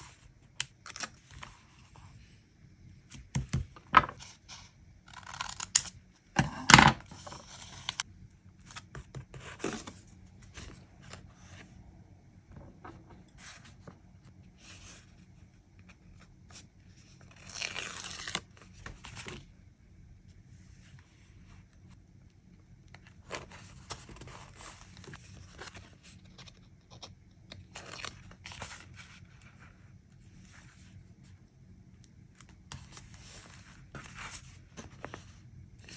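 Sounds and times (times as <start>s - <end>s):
paper and stickers rustling: 23.0s - 31.0s, 32.4s - 35.9s.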